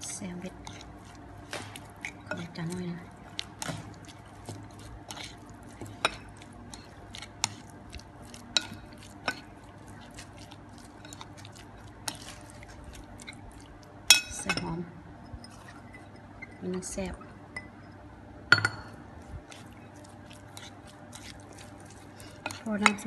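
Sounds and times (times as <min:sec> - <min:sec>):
spoon stirring chicken in a bowl: 0:00.0 - 0:14.7, 0:19.4 - 0:23.0.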